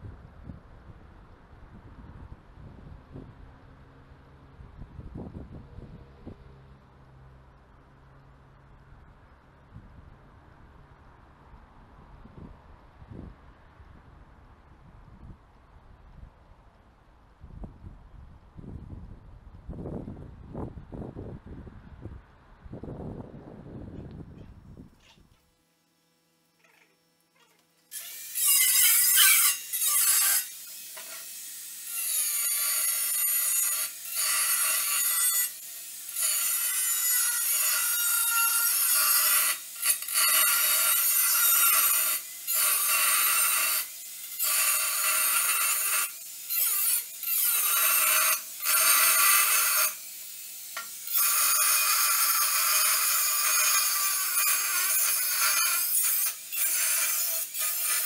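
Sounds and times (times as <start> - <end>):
angle grinder cutting steel: 27.9 - 58.0.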